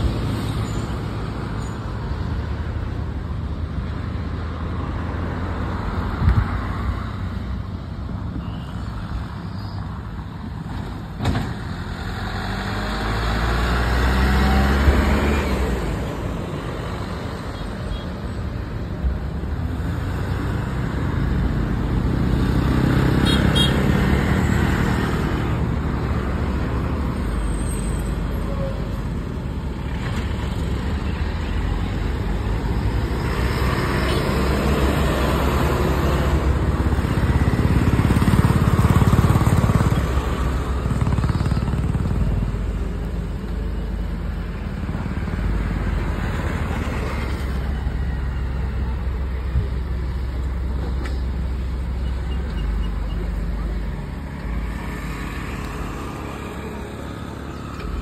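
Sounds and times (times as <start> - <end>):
motorcycles passing: 29.0 - 43.5.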